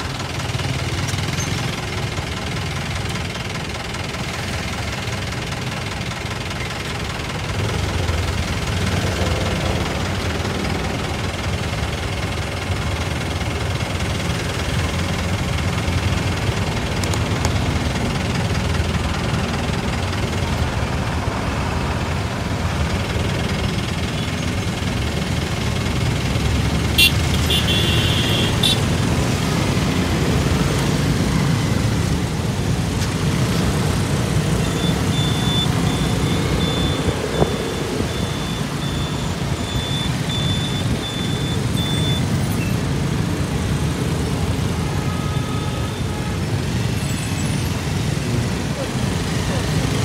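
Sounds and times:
engines and road noise rumbling: 0:00.0 - 0:50.0
repeating high beep: 0:34.6 - 0:42.8.

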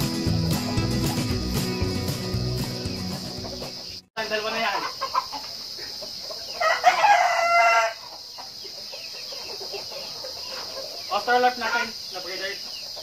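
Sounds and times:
rooster crowing: 0:06.5 - 0:08.2.

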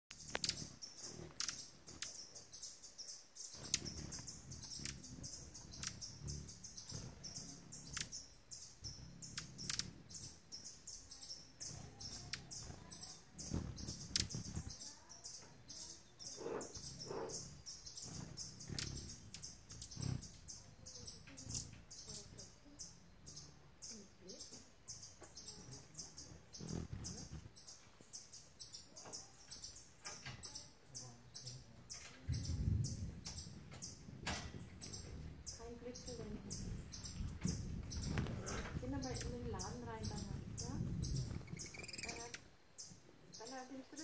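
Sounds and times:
hummingbird chip notes: 0:00.1 - 0:27.8, 0:32.3 - 0:43.8
whir of hummingbird wings: 0:00.2 - 0:02.3, 0:03.4 - 0:23.6, 0:25.4 - 0:27.8, 0:32.3 - 0:42.5.

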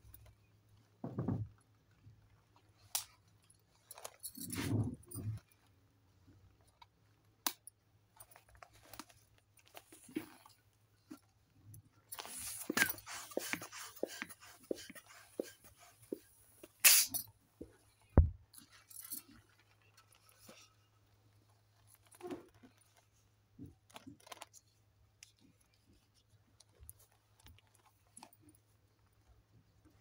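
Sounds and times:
balloon rubber rubbing and squeaking: 0:12.2 - 0:17.1
air hissing: 0:16.8 - 0:17.2.

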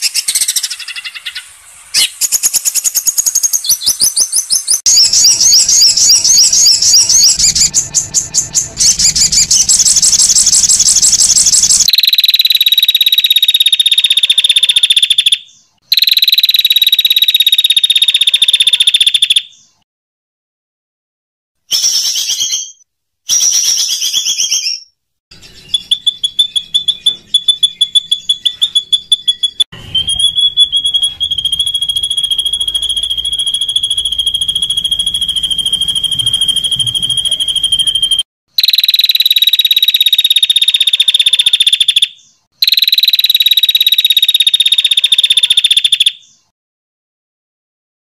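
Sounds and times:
fast rattling bird trill: 0:00.0 - 0:19.7, 0:25.4 - 0:46.5
harsh raspy bird calls: 0:00.0 - 0:19.7
long high-pitched bird trill: 0:00.0 - 0:19.8, 0:21.7 - 0:46.5.

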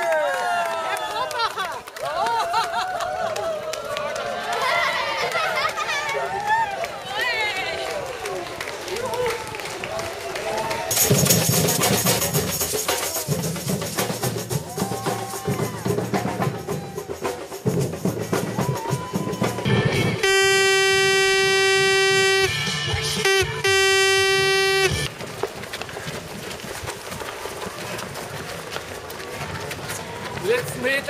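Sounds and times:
shaker: 0:10.9 - 0:19.7
samba drum group playing: 0:10.9 - 0:20.3
loud horn blast: 0:20.0 - 0:25.1.

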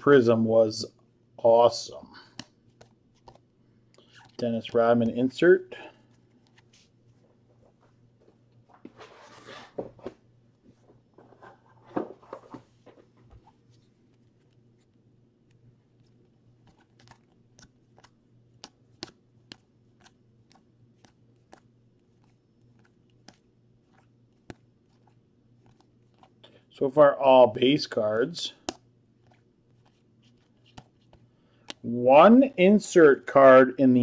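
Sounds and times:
cards sliding with soft clicks: 0:02.2 - 0:04.5, 0:06.0 - 0:07.2, 0:13.4 - 0:26.4, 0:28.6 - 0:31.8.

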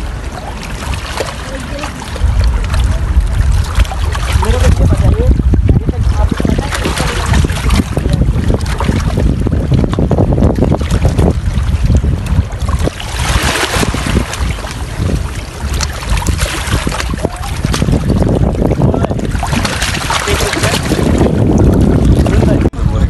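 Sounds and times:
waves splashing against rocks: 0:00.0 - 0:22.8
wind buffeting microphone: 0:00.0 - 0:23.0.

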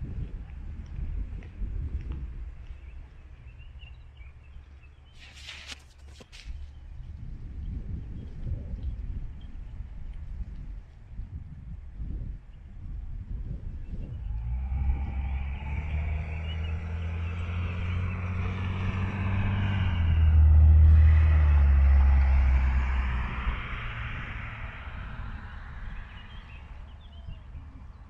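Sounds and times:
vehicle driving past: 0:14.0 - 0:27.6.

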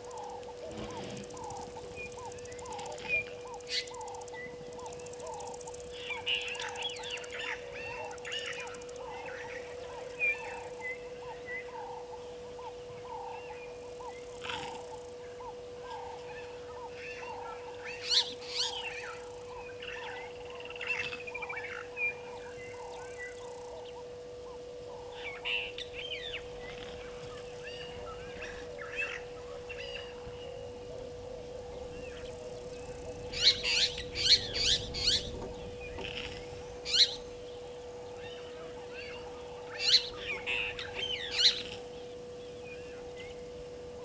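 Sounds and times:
loud sharp bird calls: 0:00.0 - 0:24.0, 0:31.8 - 0:37.3
birds calling: 0:00.0 - 0:44.0
steady hum: 0:00.0 - 0:44.0.

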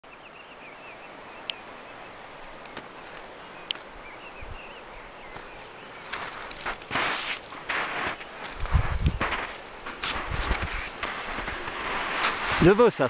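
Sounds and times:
mountain river rushing: 0:00.1 - 0:13.0
footsteps crunching in snow: 0:05.3 - 0:13.0.

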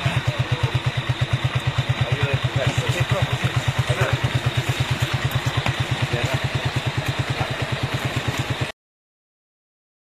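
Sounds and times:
motorcycle engine idling: 0:00.0 - 0:08.8.

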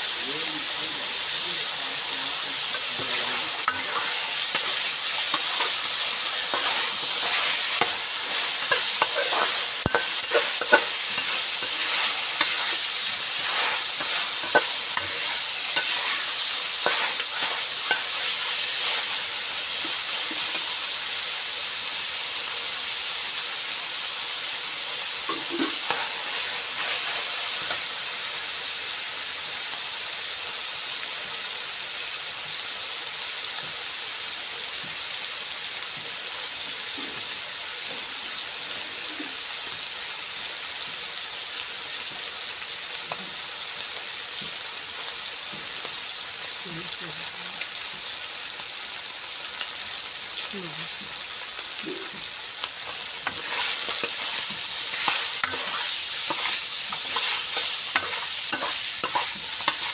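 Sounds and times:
chicken sizzling in oil: 0:00.0 - 0:59.9
metal spatula scraping wok: 0:02.6 - 0:20.8, 0:25.3 - 0:27.9, 0:52.8 - 0:59.9.

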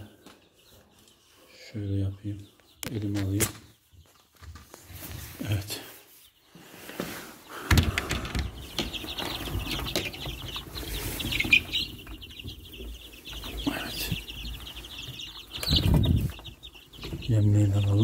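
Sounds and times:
chicks cheeping: 0:00.0 - 0:18.0.

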